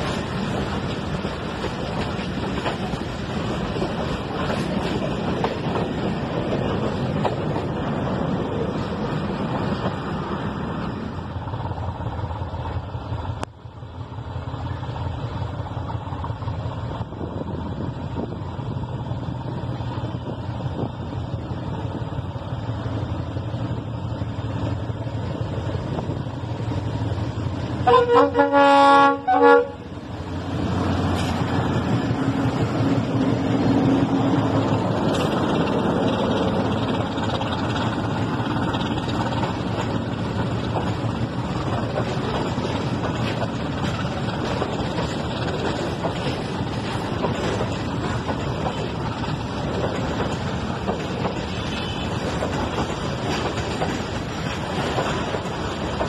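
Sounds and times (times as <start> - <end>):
train wheels rumbling on track: 0.0 - 56.0
locomotive horn blasts: 27.8 - 29.8, 51.5 - 52.2.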